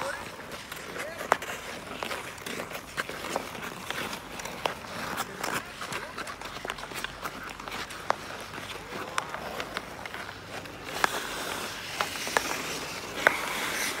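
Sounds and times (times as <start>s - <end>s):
skates scraping on ice: 0.0s - 14.0s
sticks hitting ball: 9.0s - 14.0s.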